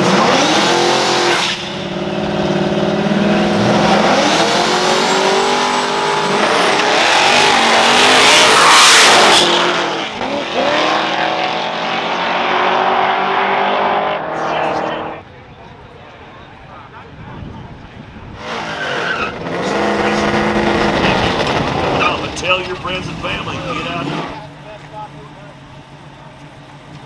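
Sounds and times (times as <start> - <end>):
car engines revving: 0.0 - 27.0
tire squeal: 4.3 - 10.2, 18.4 - 22.4.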